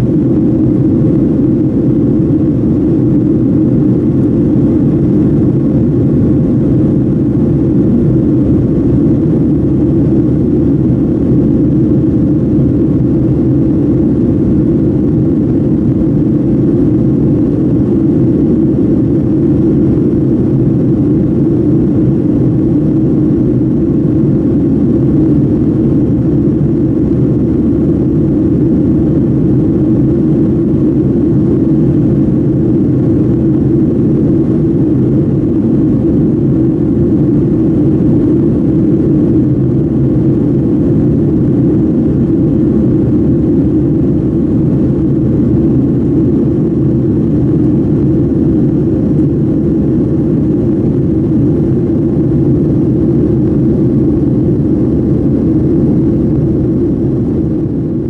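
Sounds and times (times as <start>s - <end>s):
jet engines droning: 0.0s - 58.0s.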